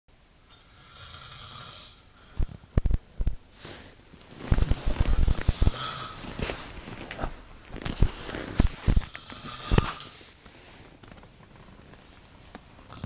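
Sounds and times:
man snoring: 0:00.6 - 0:02.4, 0:05.2 - 0:06.4, 0:09.1 - 0:10.2.

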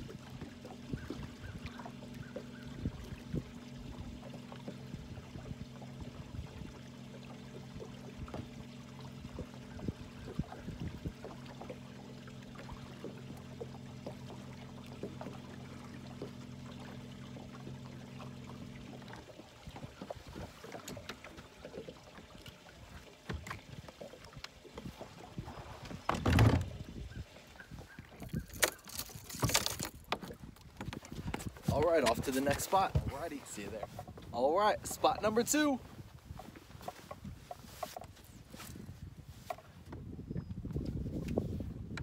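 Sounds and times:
electric trolling motor humming: 0:00.0 - 0:25.8
water lapping: 0:00.0 - 0:42.0
small knocks against boat: 0:07.4 - 0:11.9, 0:12.5 - 0:27.0, 0:27.9 - 0:34.4, 0:35.6 - 0:42.0.

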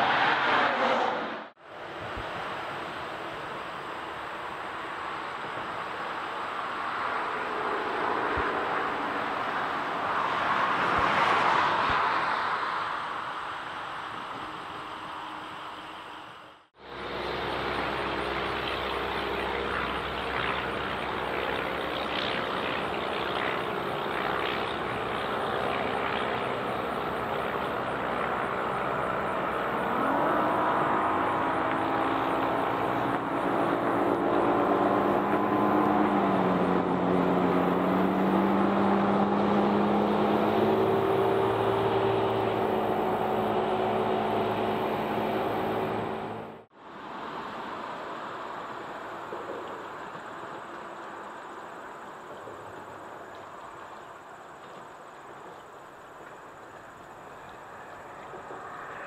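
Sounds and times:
engine running: 0:13.8 - 0:59.0.

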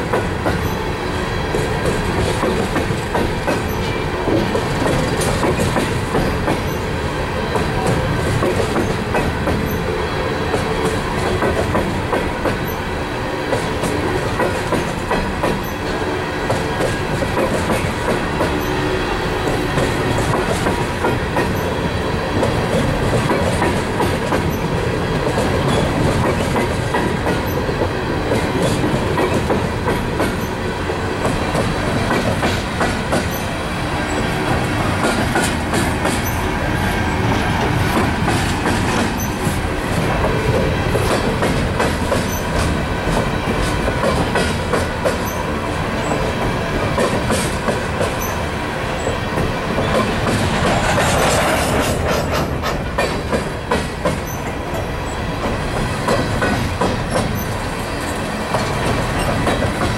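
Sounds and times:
train wheels rumbling on rail: 0:00.0 - 0:59.9
wheels clicking over rail joints: 0:01.5 - 0:06.9, 0:19.4 - 0:30.6, 0:31.2 - 0:36.5, 0:37.1 - 0:48.4, 0:49.1 - 0:59.9.

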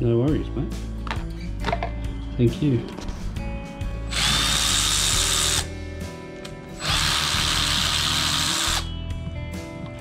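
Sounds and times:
background music: 0:00.0 - 0:10.0
cordless ratchet whine: 0:06.8 - 0:08.9.

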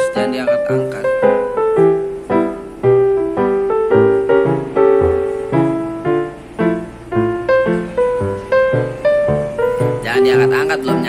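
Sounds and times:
piano melody: 0:00.0 - 0:11.0.

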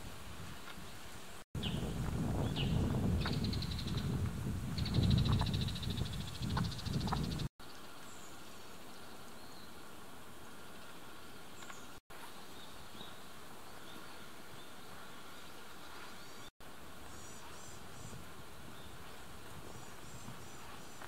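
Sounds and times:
steady hiss: 0:07.7 - 0:21.0.

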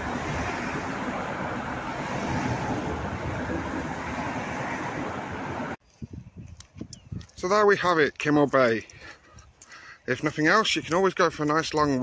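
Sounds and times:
wind buffeting microphone: 0:00.0 - 0:07.7.

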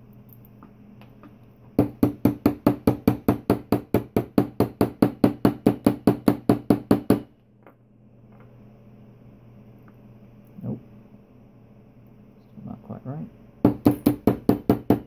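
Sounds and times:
padlock knocking on table: 0:13.7 - 0:15.0.

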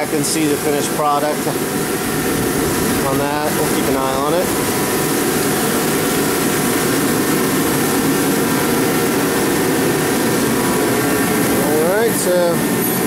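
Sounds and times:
drying equipment droning: 0:00.0 - 0:13.0.

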